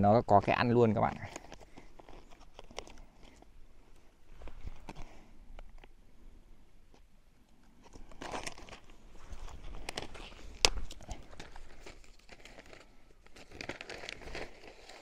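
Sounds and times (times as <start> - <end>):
rustling and crunching: 1.0 - 6.0, 6.8 - 15.0.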